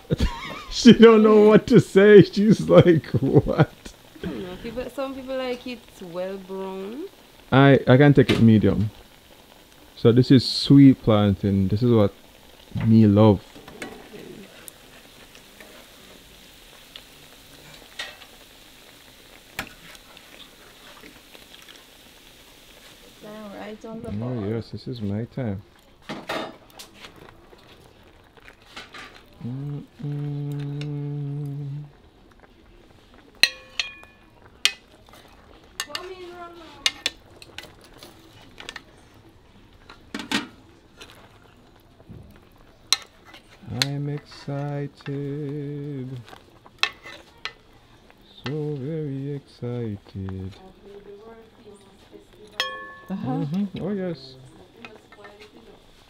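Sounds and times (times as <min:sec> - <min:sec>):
plantain sizzling in oil: 0:00.0 - 0:56.0
metal spoon clicking on pan: 0:33.4 - 0:34.9, 0:35.8 - 0:36.1.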